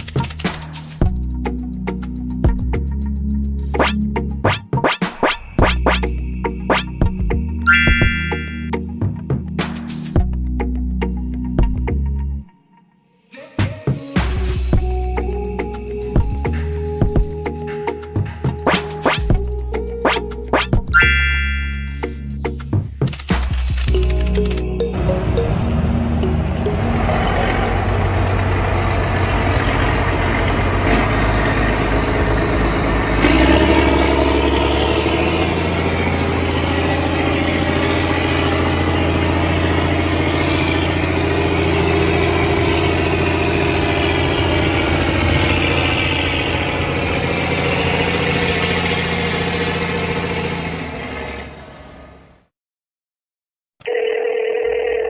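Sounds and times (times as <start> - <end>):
model tractor engine running: 31.7 - 51.3.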